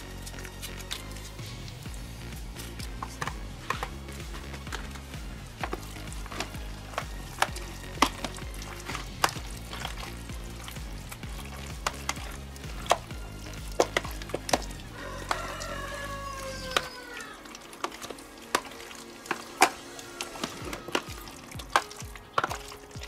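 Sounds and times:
background music: 0:00.0 - 0:23.0
wet stirring of meat marinade: 0:00.0 - 0:23.0.

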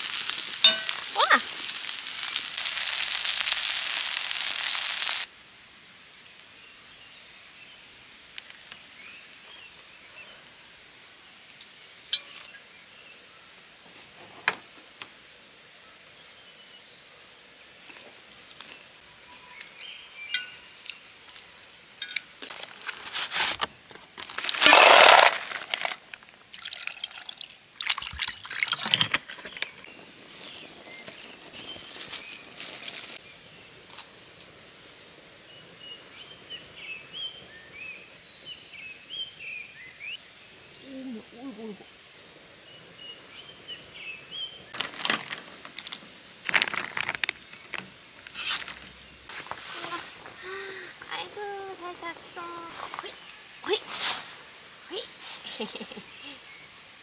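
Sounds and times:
clams poured into a pot: 0:00.0 - 0:05.3, 0:24.2 - 0:29.2
plastic bag rustling and clicks: 0:22.4 - 0:26.2, 0:44.8 - 0:48.9.

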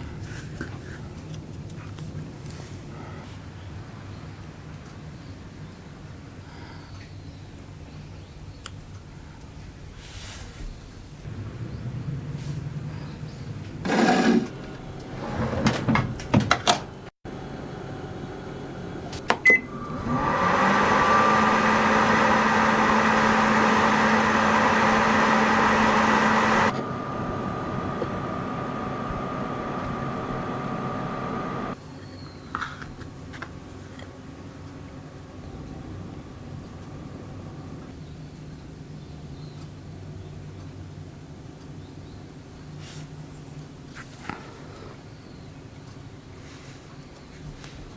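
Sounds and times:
microwave oven humming: 0:16.9 - 0:31.8.

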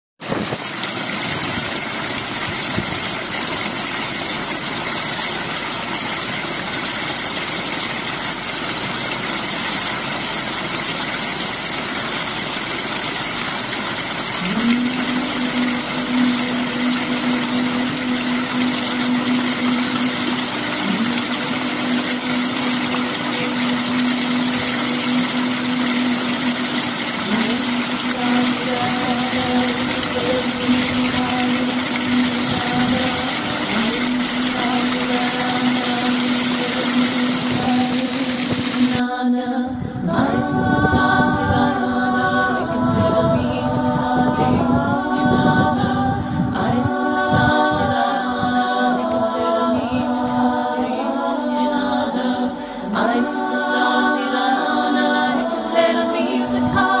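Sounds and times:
stream splashing into channel: 0:00.2 - 0:39.0
low motor hum: 0:00.2 - 0:51.4.

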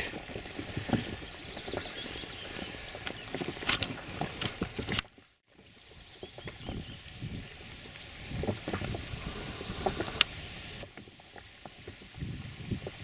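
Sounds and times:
wind hissing over water: 0:06.8 - 0:11.0.

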